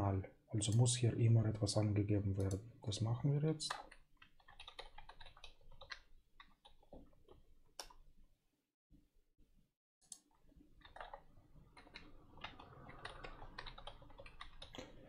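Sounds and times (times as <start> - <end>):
keyboard typing: 3.6 - 8.1, 10.0 - 15.0.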